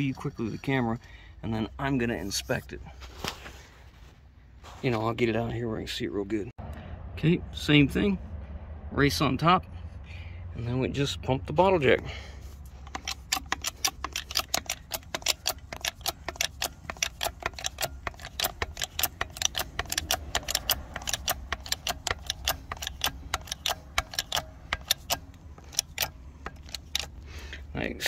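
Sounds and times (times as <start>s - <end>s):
bottle jack clicking: 12.8s - 27.5s.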